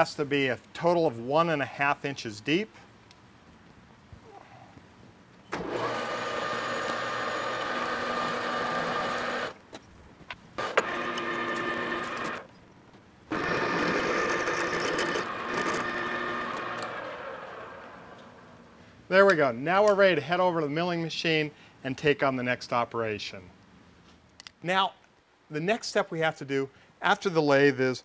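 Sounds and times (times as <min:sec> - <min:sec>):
metal lathe drilling steel: 0:05.6 - 0:09.5, 0:13.3 - 0:17.9.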